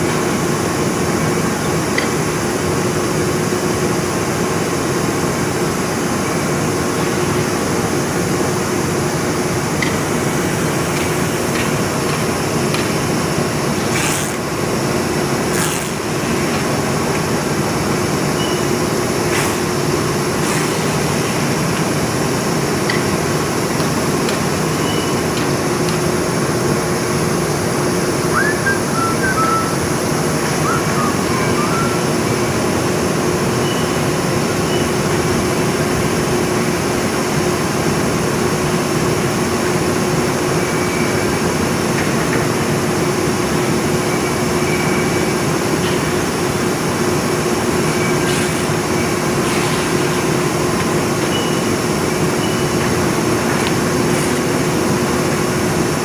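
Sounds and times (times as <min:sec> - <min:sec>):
mid-pitched machine hum: 0:00.0 - 0:36.9
industrial machinery din: 0:09.1 - 0:24.5.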